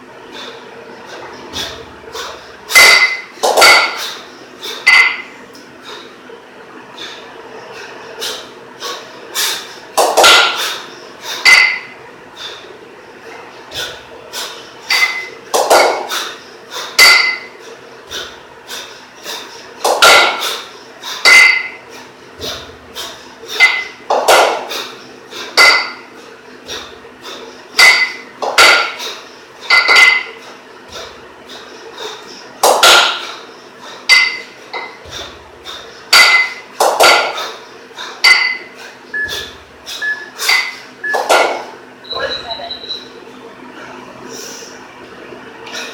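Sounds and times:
kettlebells clanking together: 0:02.7 - 0:04.2, 0:04.9 - 0:05.3, 0:10.0 - 0:10.7, 0:11.4 - 0:12.0, 0:14.9 - 0:16.2, 0:16.9 - 0:17.5, 0:19.9 - 0:20.6, 0:21.2 - 0:21.8, 0:22.4 - 0:24.8, 0:25.6 - 0:26.1, 0:27.8 - 0:31.0, 0:32.7 - 0:33.4, 0:34.1 - 0:37.6, 0:38.2 - 0:39.5, 0:40.4 - 0:41.7.

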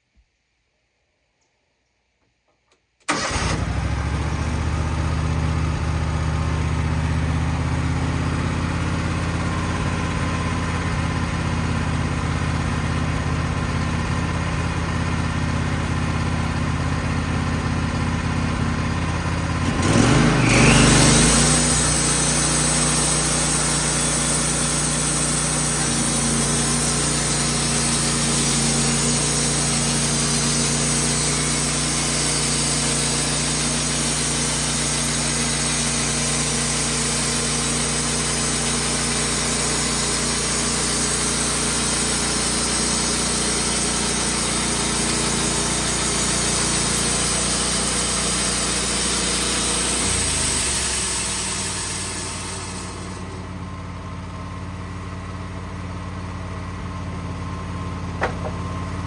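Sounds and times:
sawmill engine running under load: 0:03.3 - 0:59.0
band saw blade cutting wood: 0:19.8 - 0:53.4.

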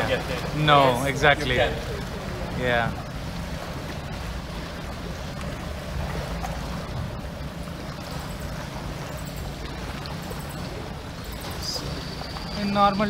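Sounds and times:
motorboat engine rumble: 0:00.0 - 0:13.0
water washing along hull: 0:00.0 - 0:13.0.

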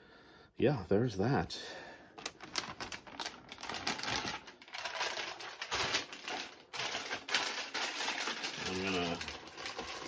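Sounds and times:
plastic bag rustling: 0:02.2 - 0:10.0.

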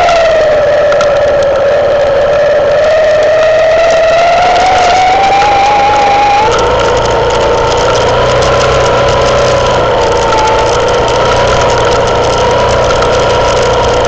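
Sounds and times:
clicks and rattles on rocky track: 0:00.0 - 0:14.0
motorcycle engine running: 0:00.0 - 0:14.0.

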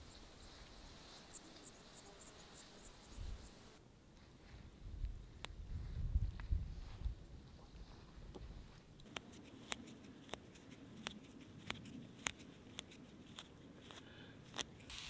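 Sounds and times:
plant stems being snipped: 0:09.0 - 0:15.0.

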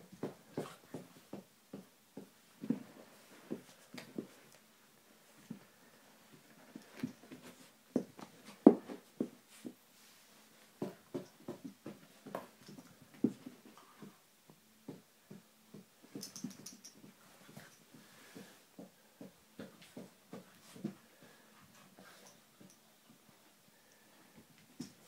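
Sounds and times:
paws thumping and scuffling on rug: 0:00.1 - 0:04.6, 0:10.6 - 0:14.2, 0:14.8 - 0:22.8.

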